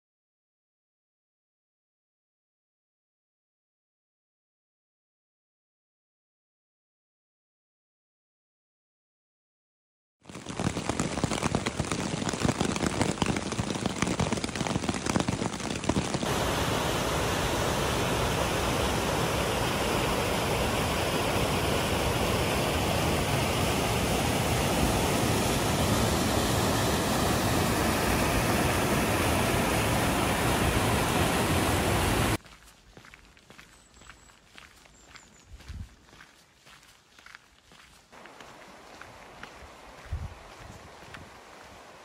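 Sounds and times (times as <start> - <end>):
grainy crackling noise: 10.2 - 16.4
river rapids rushing over rocks: 16.3 - 32.4.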